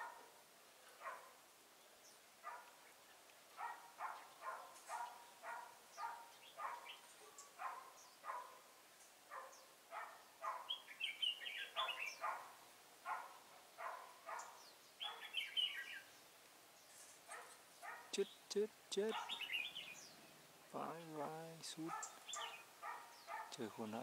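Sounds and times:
warbled bird song: 0:00.8 - 0:24.0
bird short calls: 0:19.0 - 0:20.1.

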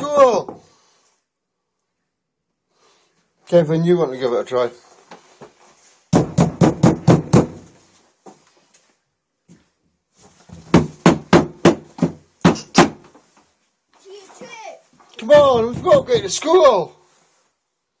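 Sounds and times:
rapid knocking on door: 0:06.1 - 0:07.7, 0:10.6 - 0:13.0, 0:15.2 - 0:16.5.

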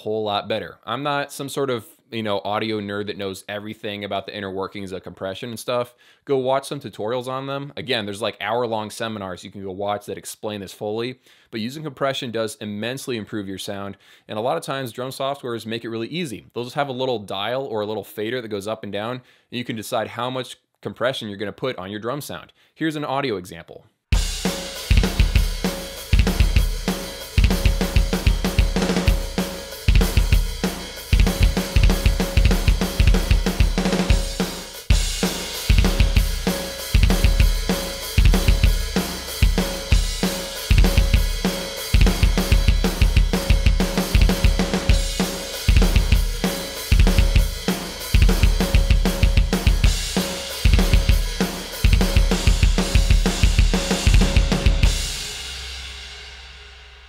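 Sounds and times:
electronic drum kit groove: 0:24.2 - 0:55.4.

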